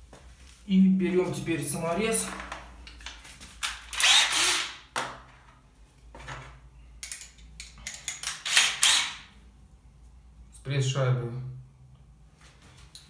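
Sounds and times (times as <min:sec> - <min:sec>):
metal fasteners clinking: 0:07.0 - 0:08.5.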